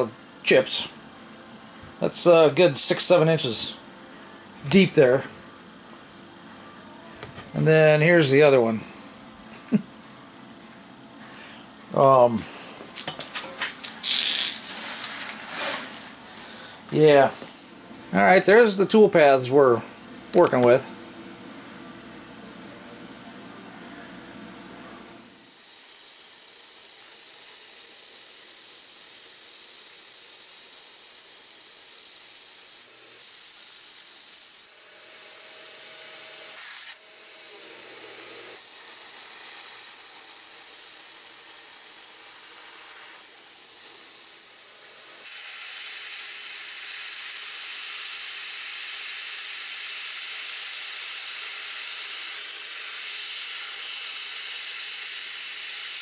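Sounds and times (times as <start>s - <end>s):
metal lathe tool hissing in cut: 14.0s - 17.6s, 25.2s - 56.0s.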